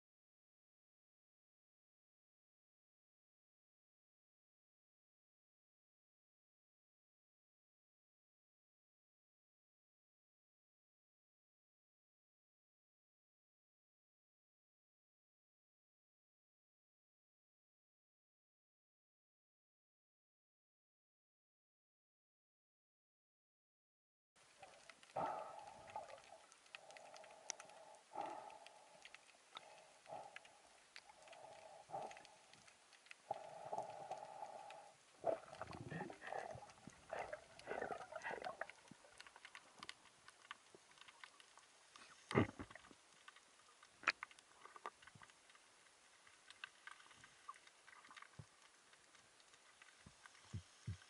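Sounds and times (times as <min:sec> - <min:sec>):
muffled underwater swishing: 0:33.3 - 0:39.1.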